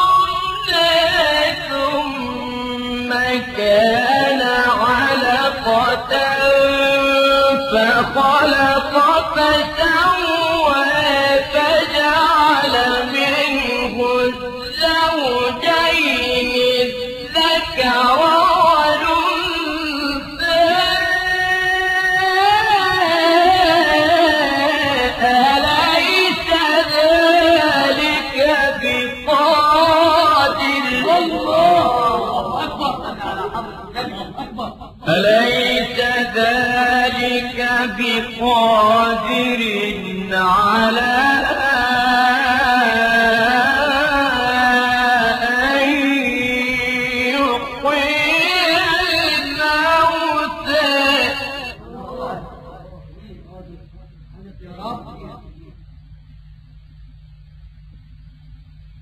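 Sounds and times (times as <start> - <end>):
person reciting melodically: 0.0 - 55.8.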